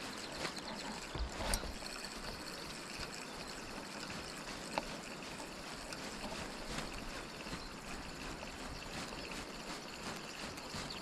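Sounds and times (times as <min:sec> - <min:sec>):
river water running over stones: 0:00.0 - 0:11.0.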